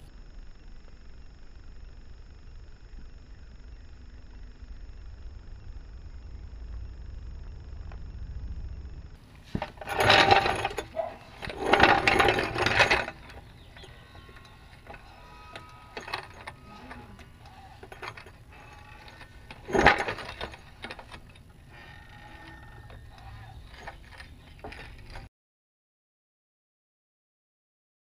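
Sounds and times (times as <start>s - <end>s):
floor jack wheels rattling: 9.4s - 25.3s.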